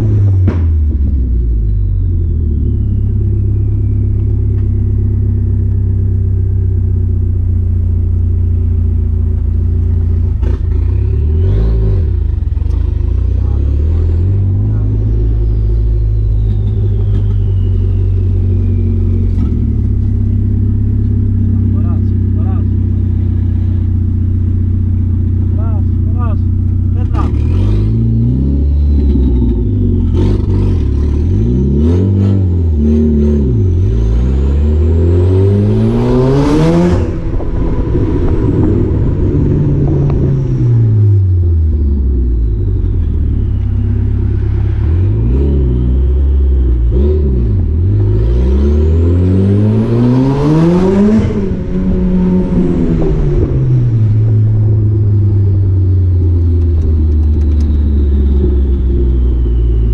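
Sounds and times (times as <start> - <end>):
car engine revving: 0.0 - 59.9
turbo whistle: 14.6 - 20.3, 55.0 - 59.9.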